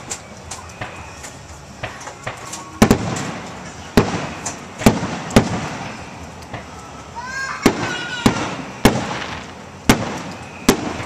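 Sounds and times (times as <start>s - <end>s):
firework bangs: 0.0s - 11.0s
rising firework whistle: 4.0s - 11.0s.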